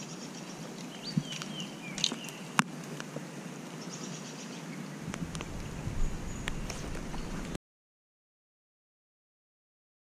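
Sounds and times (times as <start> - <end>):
bird chirps: 0.0 - 2.6, 3.8 - 7.6
faint steady hiss: 0.0 - 7.6.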